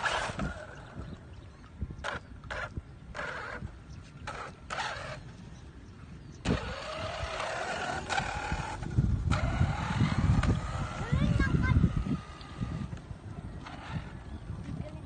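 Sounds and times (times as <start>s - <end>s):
electric motor whine: 2.0s - 5.4s, 6.4s - 14.8s.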